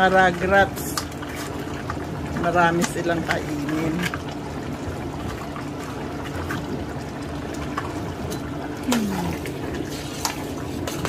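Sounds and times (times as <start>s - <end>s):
stew bubbling in a pot: 0.0s - 11.0s
metal spoon stirring: 9.9s - 11.0s.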